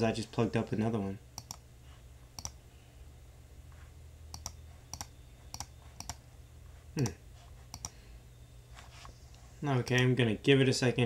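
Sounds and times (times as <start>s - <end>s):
low hum: 0.0s - 9.6s
computer clicks: 1.4s - 1.6s, 2.4s - 2.6s, 4.3s - 6.2s, 7.0s - 8.0s.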